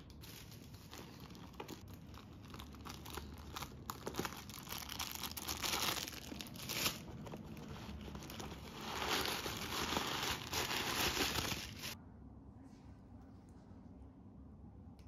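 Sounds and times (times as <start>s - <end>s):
plastic wrapping crinkling: 0.0s - 12.0s.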